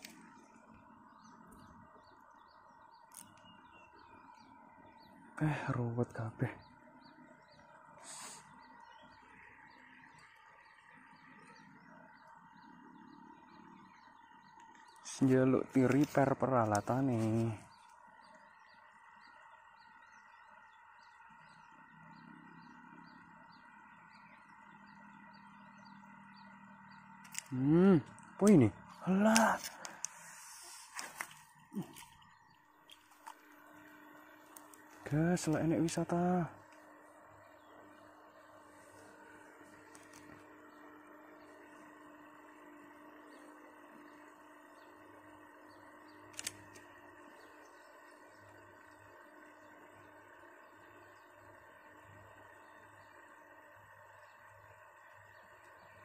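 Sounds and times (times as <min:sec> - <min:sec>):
low hum: 0:00.0 - 0:56.0
soft chirps: 0:00.0 - 0:56.0
sharp clicks: 0:03.0 - 0:03.5, 0:26.3 - 0:33.6, 0:46.1 - 0:47.0.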